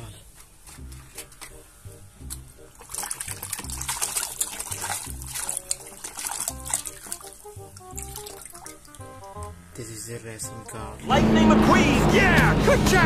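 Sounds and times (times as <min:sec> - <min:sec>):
background music with steady beat: 0:00.0 - 0:13.0
water sloshing in plastic basin: 0:02.8 - 0:09.2.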